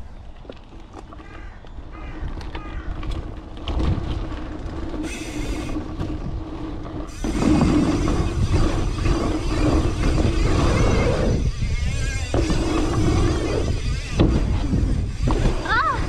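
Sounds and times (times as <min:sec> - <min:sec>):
bike tyres rumbling on dirt: 0:00.0 - 0:16.0
wind on camera: 0:02.0 - 0:16.0.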